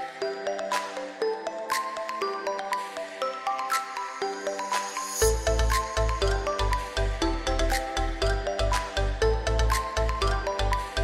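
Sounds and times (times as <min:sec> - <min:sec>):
light percussion: 0:00.0 - 0:11.0.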